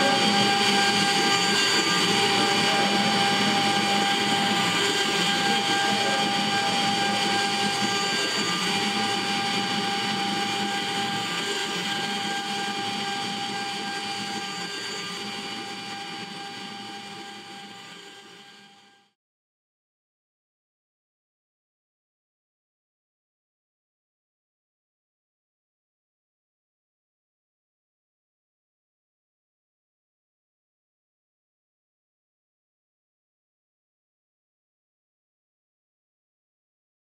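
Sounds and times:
carving bit milling wood: 0:00.0 - 0:19.1
router spindle high whine: 0:00.0 - 0:19.2.

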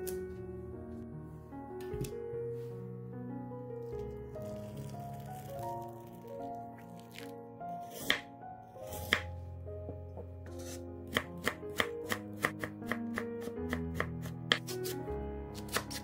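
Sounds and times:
knife chopping on wooden board: 0:07.9 - 0:09.3, 0:09.9 - 0:15.0, 0:15.6 - 0:16.0.

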